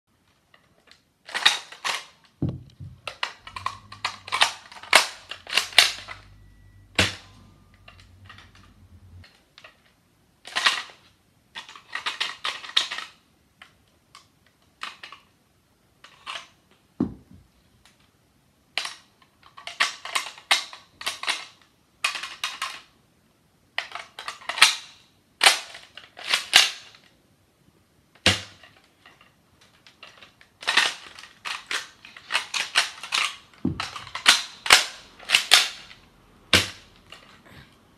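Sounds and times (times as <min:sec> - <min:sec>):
dull thumps: 0:02.4 - 0:03.6, 0:17.0 - 0:17.5.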